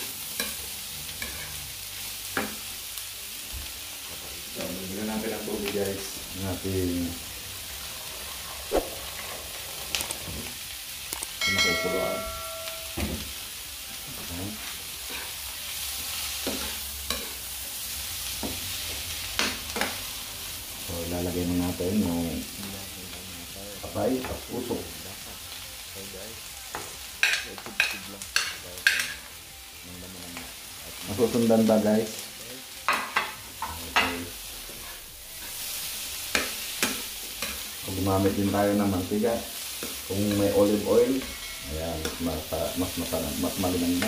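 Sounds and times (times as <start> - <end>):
beef sizzling in a frying pan: 0.0 - 44.0
metal spatula scraping a pan: 0.4 - 1.5.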